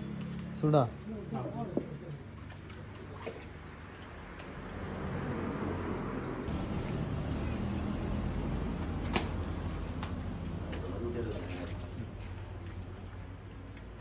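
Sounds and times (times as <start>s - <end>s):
shallow water sloshing: 1.4s - 5.1s, 9.8s - 14.0s
high-pitched whine: 4.3s - 8.8s.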